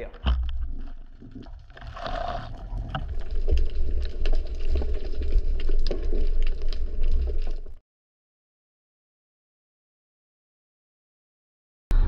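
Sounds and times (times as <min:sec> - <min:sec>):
clicks and crackles: 0:00.0 - 0:07.8
underwater water rumble: 0:00.0 - 0:07.8.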